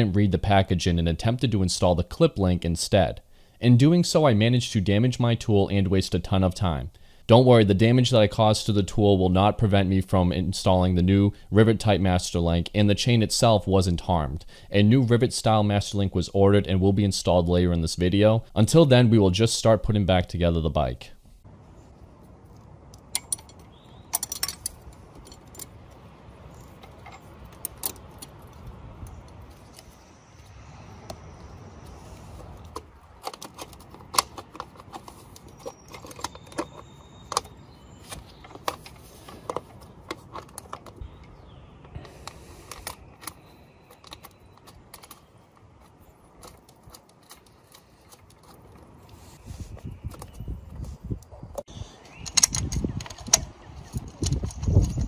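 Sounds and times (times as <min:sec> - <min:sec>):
metal hand tools clinking: 0:23.0 - 0:25.9.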